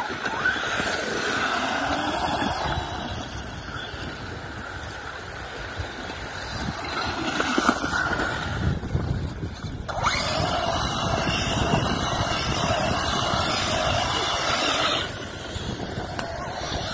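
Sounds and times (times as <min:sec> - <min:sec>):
tyres churning over grit: 0:00.0 - 0:04.3, 0:06.4 - 0:16.9
electric motor whining: 0:00.1 - 0:04.5, 0:09.7 - 0:16.9.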